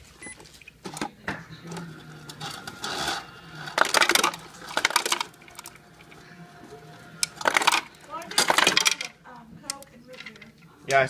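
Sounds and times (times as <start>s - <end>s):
ice clattering into plastic glass: 2.6s - 5.7s, 7.2s - 9.2s.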